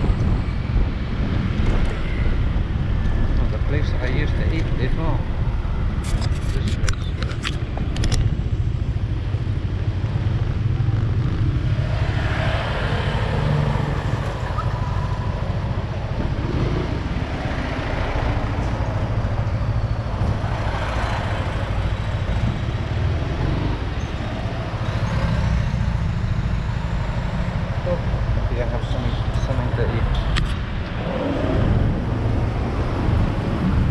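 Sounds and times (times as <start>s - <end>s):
wind on microphone: 0.0s - 3.7s, 30.1s - 33.9s
passing traffic: 0.0s - 33.9s.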